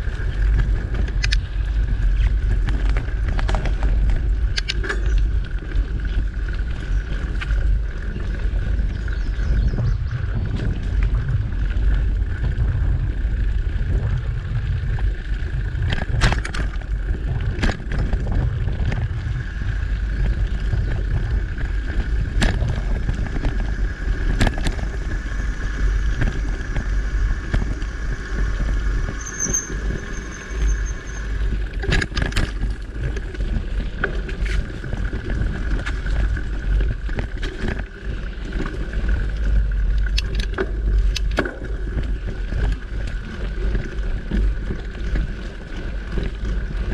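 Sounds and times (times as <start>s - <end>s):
bike rattles and knocks: 0.0s - 46.9s
wind and trail rumble: 0.0s - 46.9s
high squeak: 29.1s - 31.4s.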